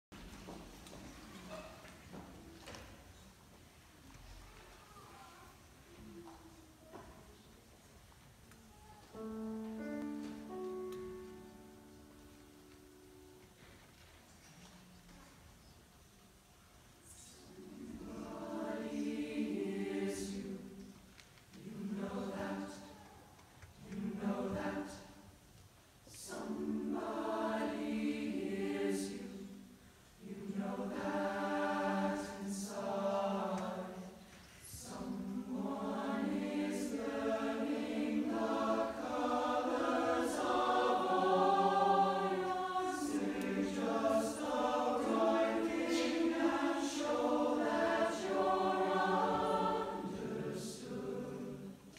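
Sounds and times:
choir singing: 17.1 - 51.9.

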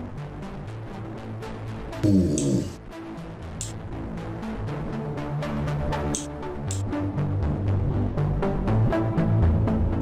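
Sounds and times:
bass line: 2.0 - 2.8
drums: 2.0 - 2.8.

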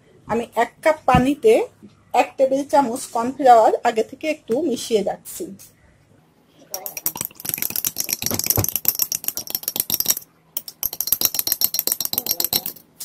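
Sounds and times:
spoon clinking against glass mug: 6.8 - 12.9.

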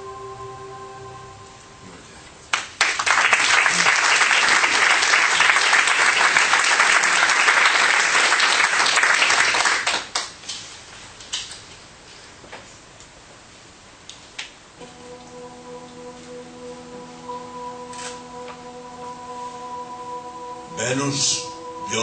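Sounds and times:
held background music tone: 0.0 - 2.2, 14.8 - 22.0
audience applauding: 2.5 - 10.4.

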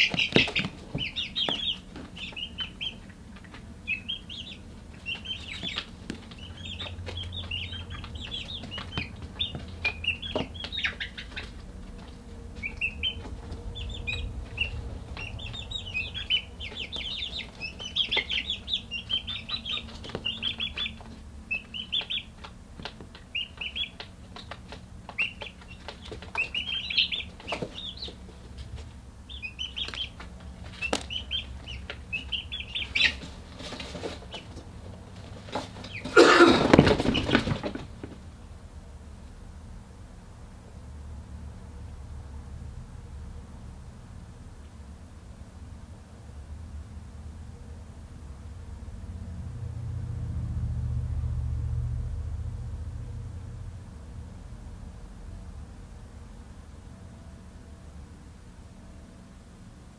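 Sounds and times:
chicks peeping: 0.0 - 38.2
low steady hum: 0.0 - 59.9.

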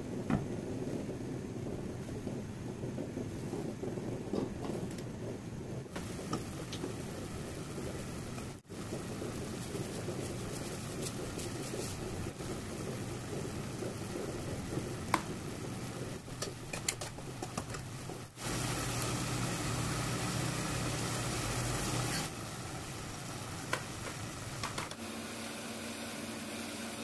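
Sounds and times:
low hum: 0.0 - 16.7
stew simmering and sizzling: 0.0 - 27.0.

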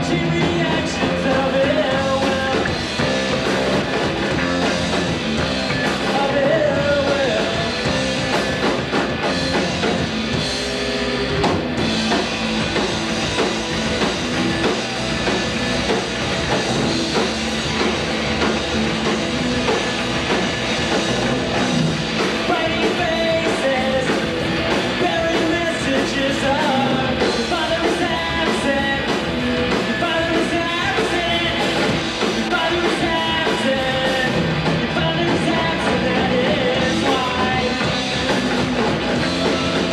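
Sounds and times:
male lead vocal: 0.0 - 3.2, 5.8 - 8.2, 22.2 - 39.9
bass guitar: 0.0 - 39.9
drum kit: 0.0 - 39.9
electric guitars: 0.0 - 39.9.

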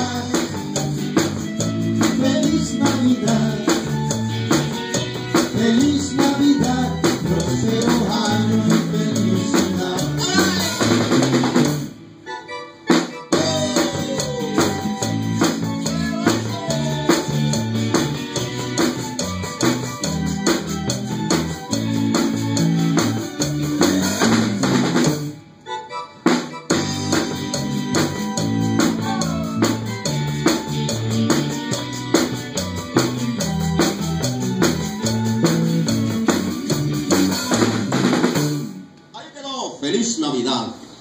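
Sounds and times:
drum rimshots: 0.0 - 12.1, 12.9 - 25.4, 26.3 - 39.1
live band playing: 0.0 - 39.3.

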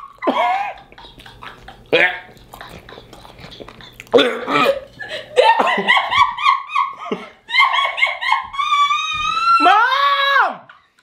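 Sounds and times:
person shrieking laughter: 0.0 - 1.0, 4.1 - 10.9.

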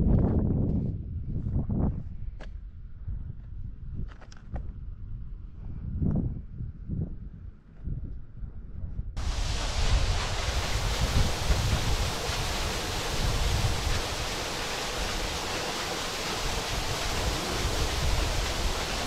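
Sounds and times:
wind on microphone: 0.0 - 19.0
water pouring into a well: 9.2 - 19.0.

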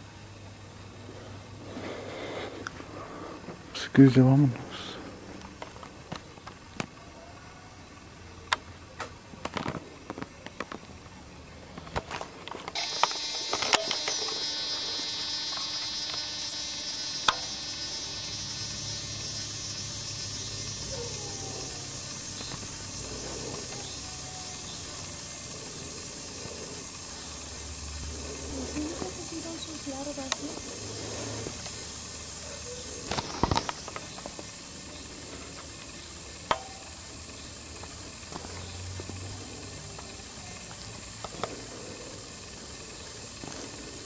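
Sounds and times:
high-pitched hiss: 9.6 - 44.0.

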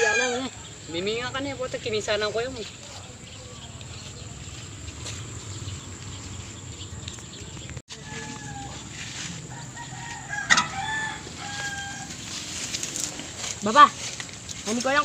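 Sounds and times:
rooster crowing: 0.0 - 0.7, 7.9 - 12.6
outdoor background noise: 0.0 - 15.0.

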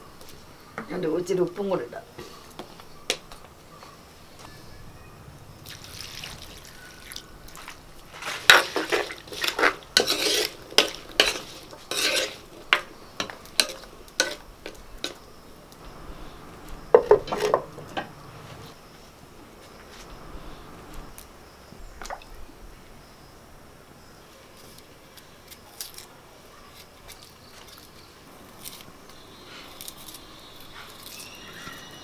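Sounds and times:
wooden spoon stirring in clay pot: 6.2 - 18.7.

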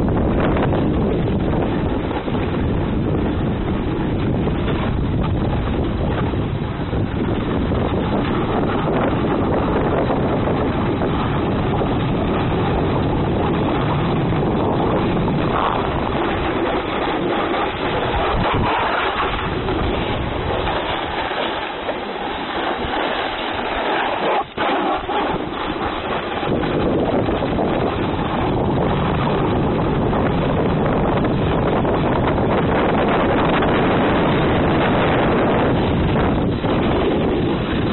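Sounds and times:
wind buffeting microphone: 0.0 - 37.9
skis sliding on snow: 15.0 - 28.4.

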